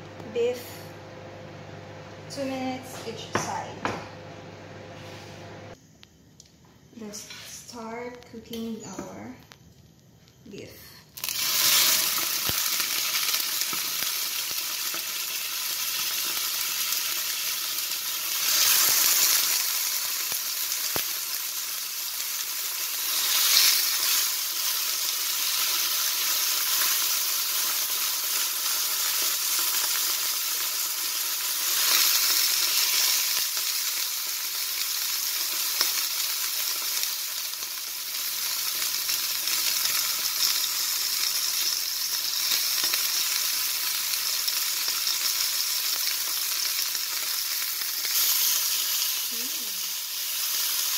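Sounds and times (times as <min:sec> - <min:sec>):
steak sizzling in frying pan: 0:11.2 - 0:50.9.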